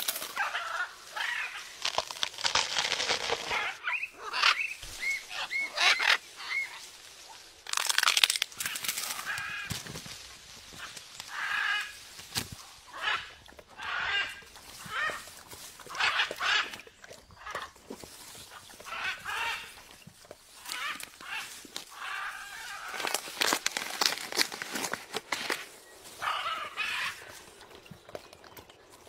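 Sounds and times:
rustling crackling: 1.1s - 3.8s, 17.9s - 28.2s
macaw squawking: 2.6s - 6.8s.

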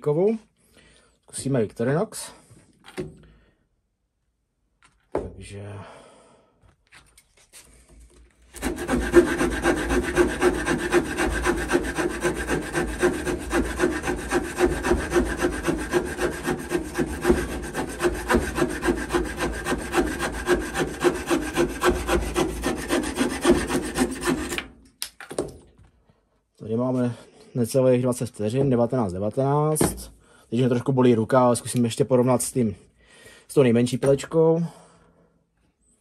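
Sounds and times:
saw cutting through dry branch: 8.5s - 24.7s.

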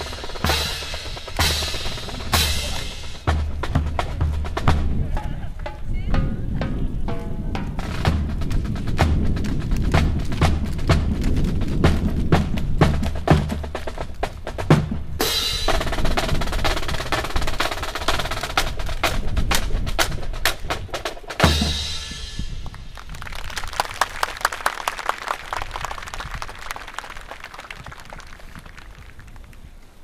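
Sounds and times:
drums with snare rolls: 0.0s - 29.0s
sharp claps: 22.6s - 29.7s.

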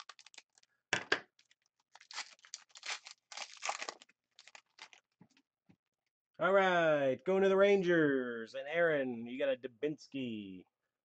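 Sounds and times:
foil wrapper crinkling: 0.0s - 0.7s, 1.4s - 5.1s.

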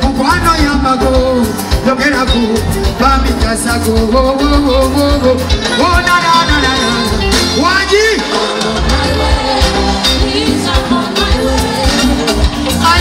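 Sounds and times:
man singing into a microphone: 0.0s - 8.7s, 12.7s - 13.0s
live band music: 0.0s - 13.0s.

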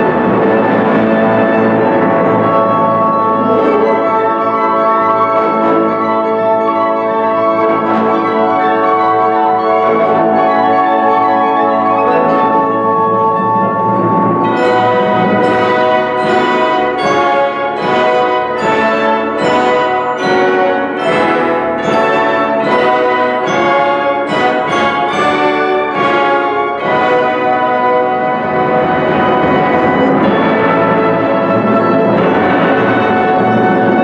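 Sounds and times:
wind band playing chords: 0.0s - 34.0s
sharp percussion strikes: 11.9s - 34.0s.

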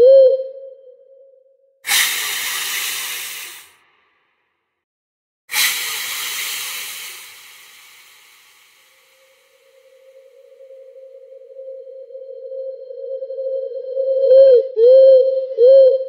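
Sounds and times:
long hisses: 1.9s - 3.8s, 5.5s - 10.6s.

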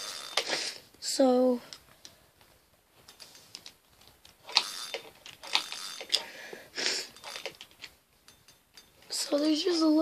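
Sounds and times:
fishing reel cranking: 0.0s - 0.8s, 4.5s - 6.3s, 7.0s - 7.7s.

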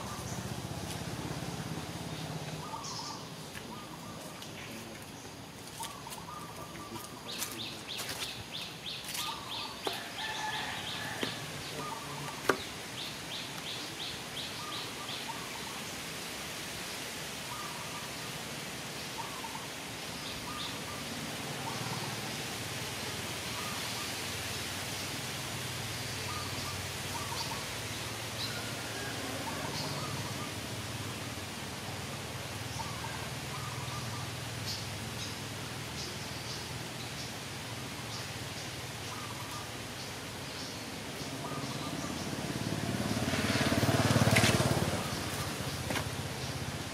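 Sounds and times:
birds chirping: 0.0s - 16.1s, 26.2s - 31.4s, 32.2s - 46.9s
steady hiss: 0.0s - 42.5s.

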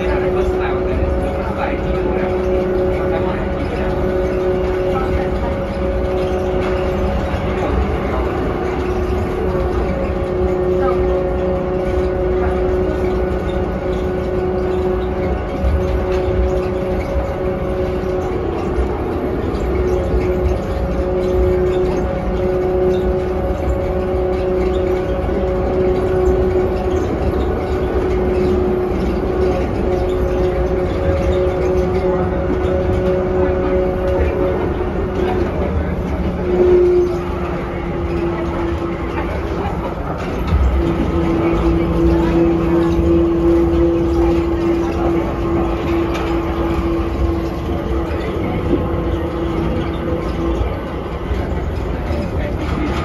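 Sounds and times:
train rumble: 0.0s - 53.0s
train whine: 0.0s - 53.0s.

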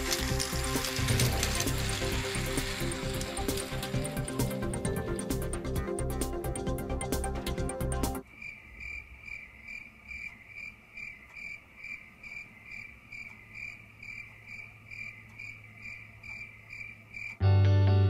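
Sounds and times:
cricket chirping: 8.2s - 17.4s
loud guitar music: 17.4s - 18.0s.

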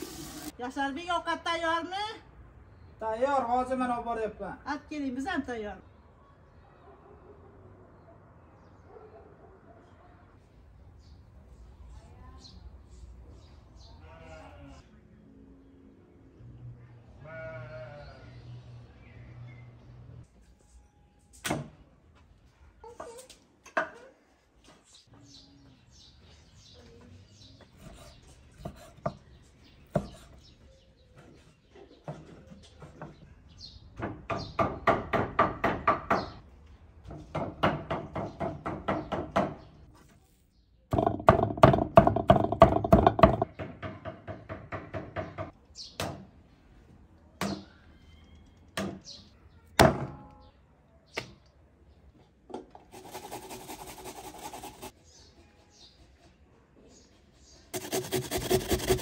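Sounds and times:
food rasping on box grater: 52.9s - 54.9s, 57.8s - 59.0s.

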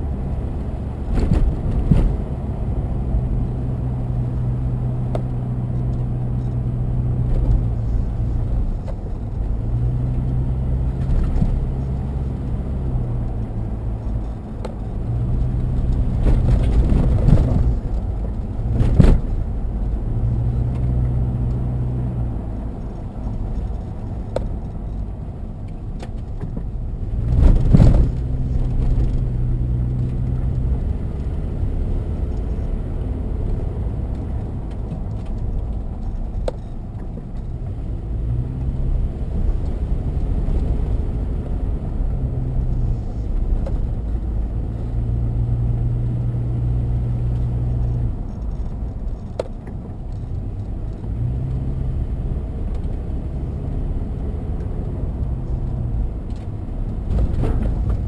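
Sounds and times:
engine hum: 0.0s - 58.0s
road and tyre rumble: 0.0s - 58.0s
loud thump over bump: 1.1s - 2.3s, 18.7s - 19.4s.

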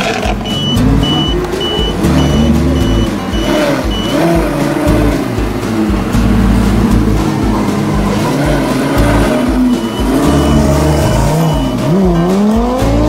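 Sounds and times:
loud low rumble with tones: 0.0s - 13.0s
short high electronic beeps: 0.3s - 4.4s, 8.1s - 12.2s.

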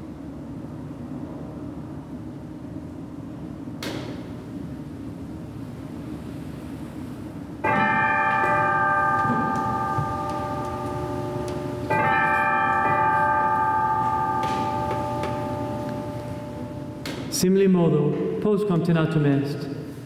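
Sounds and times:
bell ringing: 7.6s - 17.0s.

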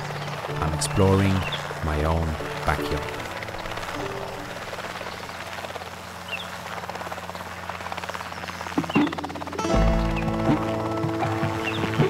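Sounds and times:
helicopter rotor hum: 0.0s - 12.0s.

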